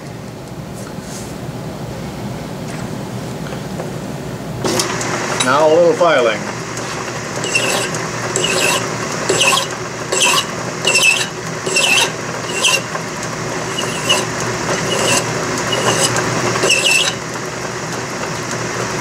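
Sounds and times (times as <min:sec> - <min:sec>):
lathe running: 0:04.6 - 0:19.0
hand file strokes: 0:07.4 - 0:12.9, 0:13.6 - 0:17.2.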